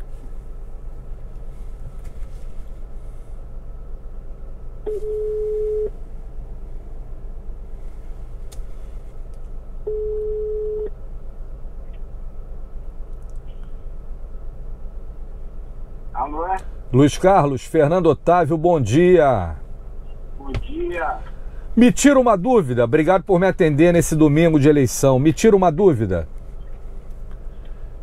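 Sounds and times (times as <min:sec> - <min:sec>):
low steady hum: 0:00.0 - 0:28.0
telephone ringback tone: 0:04.9 - 0:05.9, 0:09.9 - 0:10.9.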